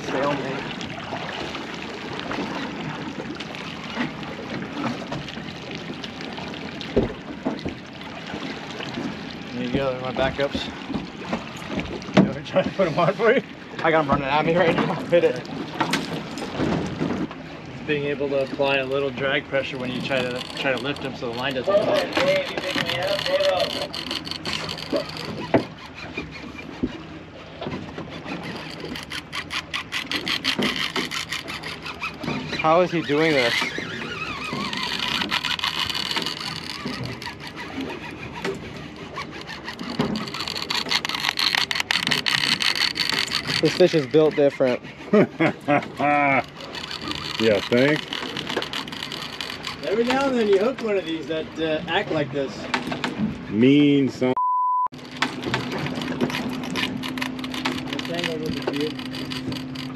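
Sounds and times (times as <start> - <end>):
water sloshing against boat hull: 0.0 - 59.9
fishing reel clicking: 19.6 - 26.6, 28.2 - 44.6, 46.4 - 51.3, 55.0 - 59.9.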